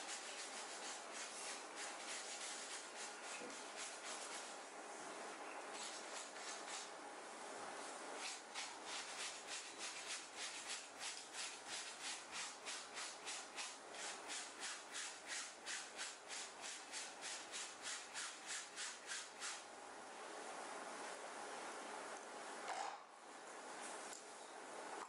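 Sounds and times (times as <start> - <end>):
scrubbing strokes on fabric: 0.0 - 4.6, 7.8 - 19.6.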